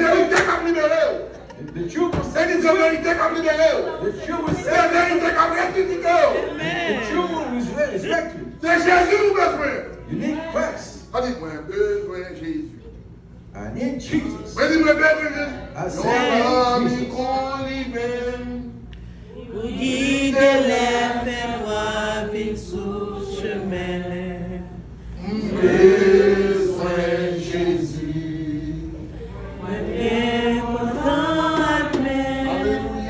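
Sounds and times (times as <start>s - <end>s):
voices chanting a song: 19.5s - 33.0s.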